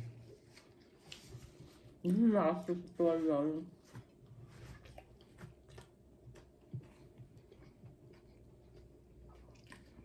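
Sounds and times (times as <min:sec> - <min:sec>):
person chewing food: 0:04.0 - 0:10.0.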